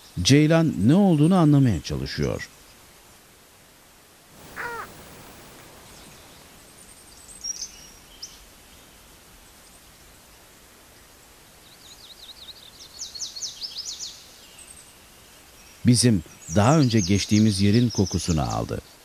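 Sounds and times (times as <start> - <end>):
open-air background hiss: 0.0 - 19.0
birds calling: 4.4 - 9.0.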